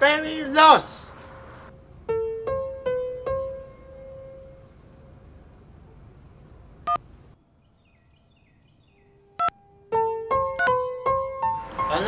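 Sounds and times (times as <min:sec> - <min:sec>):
quick piano notes: 0:02.1 - 0:05.1, 0:09.8 - 0:12.0
faint bird chirps: 0:06.9 - 0:11.0
touch-tone beep: 0:10.6 - 0:10.8.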